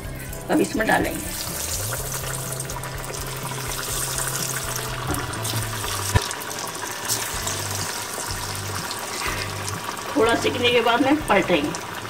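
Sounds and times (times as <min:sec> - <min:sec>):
donuts sizzling in hot oil: 0:00.0 - 0:12.0.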